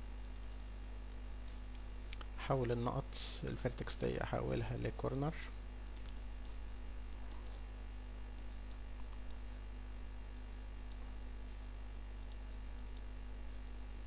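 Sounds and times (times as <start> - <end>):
electrical mains hum: 0.0 - 14.0
faint ticks: 12.2 - 13.8.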